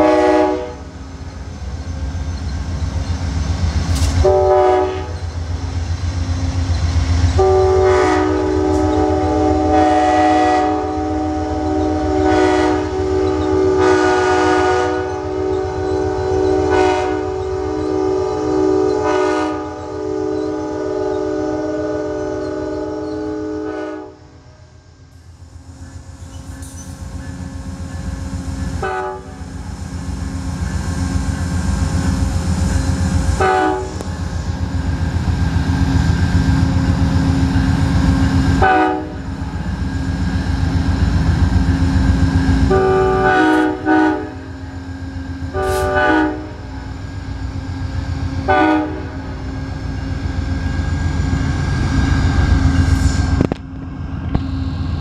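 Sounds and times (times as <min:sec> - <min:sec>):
short horn blasts: 0:00.0 - 0:00.8, 0:04.2 - 0:05.2, 0:07.4 - 0:24.2, 0:28.8 - 0:29.4, 0:33.4 - 0:34.0, 0:38.6 - 0:39.2, 0:42.7 - 0:44.4, 0:45.6 - 0:46.6, 0:48.5 - 0:49.2
train horn chord: 0:00.0 - 0:00.9, 0:04.2 - 0:05.2, 0:07.4 - 0:24.6, 0:28.8 - 0:29.5, 0:33.4 - 0:34.1, 0:38.6 - 0:39.3, 0:42.6 - 0:44.5, 0:45.5 - 0:46.8, 0:48.4 - 0:49.4
diesel locomotive engines rumbling: 0:00.0 - 0:55.0.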